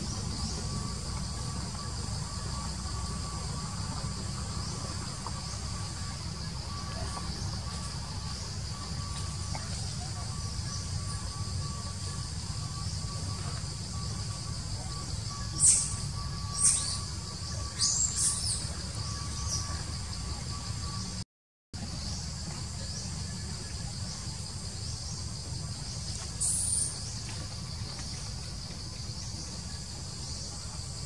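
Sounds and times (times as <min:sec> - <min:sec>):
insect chorus buzzing: 0:00.0 - 0:21.2, 0:21.8 - 0:31.0
low steady rumble: 0:00.0 - 0:21.2.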